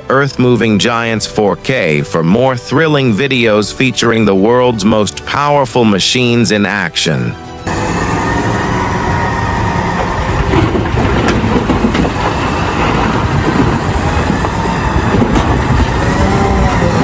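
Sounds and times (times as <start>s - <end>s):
diesel engine running under load: 7.6s - 17.0s.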